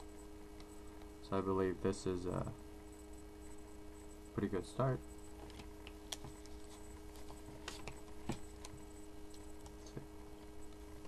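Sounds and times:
steady electrical hum: 0.0s - 11.0s
cards being shuffled by hand: 5.4s - 11.0s.

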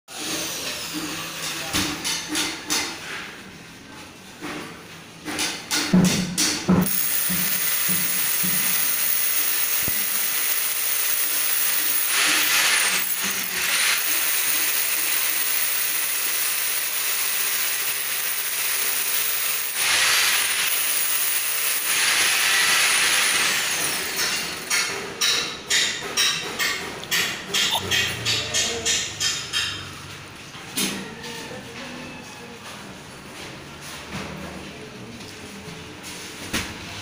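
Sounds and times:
power tool running with hissing: 6.8s - 23.9s.

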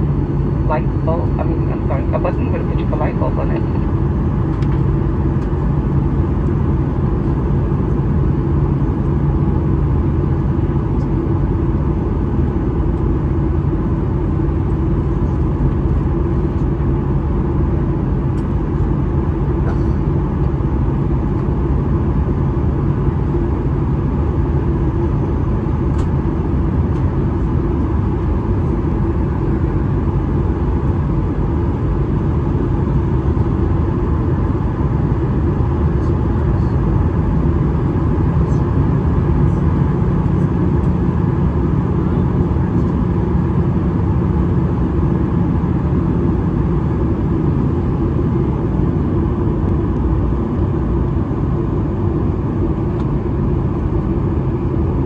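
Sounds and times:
airplane cabin engine rumble: 0.0s - 55.0s.

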